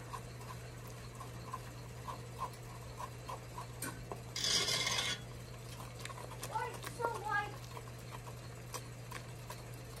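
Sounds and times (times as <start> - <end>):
spatula scraping a metal pot: 0.0 - 5.3
steady low hum: 0.0 - 10.0.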